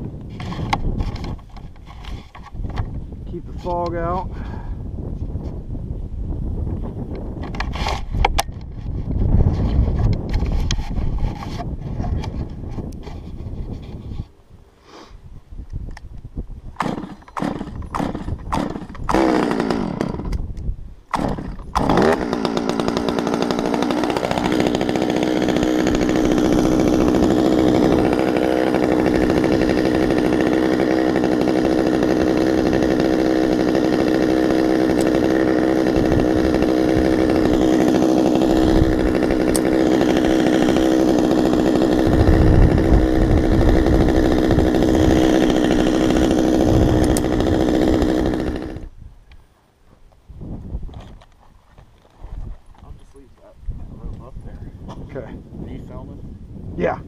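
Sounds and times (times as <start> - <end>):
chainsaw pull-start: 7.4 - 8.8, 16.8 - 20.4, 21.1 - 48.9
chainsaw engine revving and idling: 16.8 - 20.4, 21.1 - 48.9.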